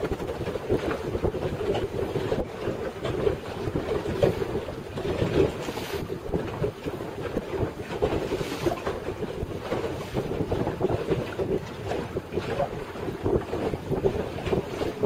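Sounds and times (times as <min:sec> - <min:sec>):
water washing against boat hull: 0:00.0 - 0:15.0
wind buffeting microphone: 0:00.0 - 0:15.0.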